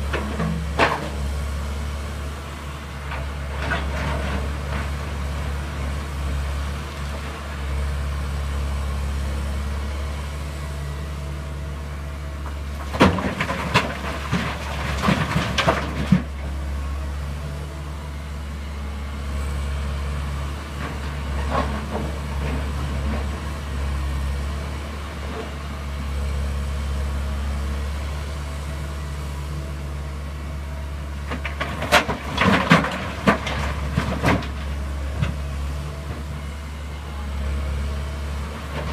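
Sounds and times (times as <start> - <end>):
diesel engines droning: 0.0 - 38.9
rocks clattering into steel truck body: 12.8 - 16.4, 31.3 - 34.6.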